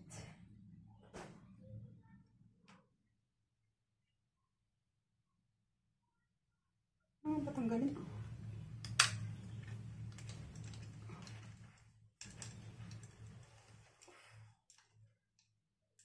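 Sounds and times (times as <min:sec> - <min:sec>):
straps rustling and clicking: 0:09.0 - 0:15.5.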